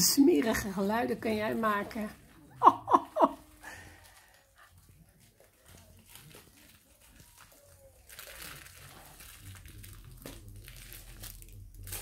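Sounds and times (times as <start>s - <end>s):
rustling: 3.2s - 12.0s.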